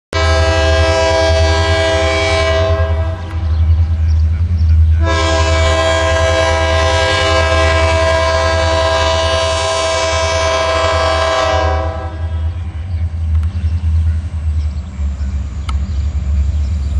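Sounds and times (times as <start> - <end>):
locomotive air horn blasts: 0.1 - 3.4, 5.0 - 12.7
locomotive engine rumble: 0.2 - 16.9.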